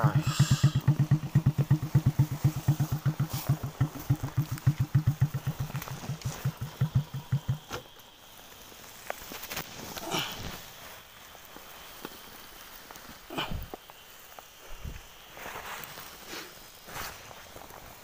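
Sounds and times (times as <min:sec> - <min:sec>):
small motorcycle engine idling roughly: 0:00.0 - 0:07.9.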